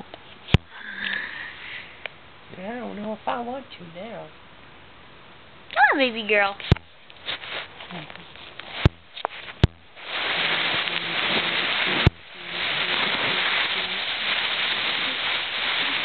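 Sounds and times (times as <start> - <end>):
rustling and scraping on microphone: 6.6 - 16.0.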